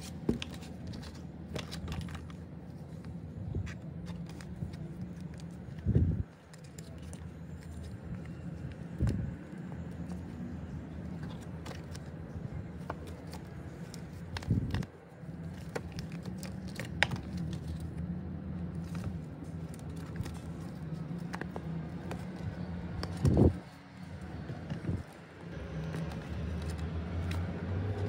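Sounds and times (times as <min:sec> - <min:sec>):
plastic sleeves clicking and crinkling: 0:00.0 - 0:28.0.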